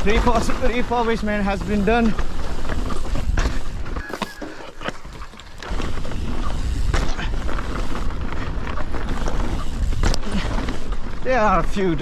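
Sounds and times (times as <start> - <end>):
bike knocks and rattles: 0.0 - 12.0
bike tyres rolling on dirt: 0.0 - 12.0
wind buffeting microphone: 5.0 - 12.0.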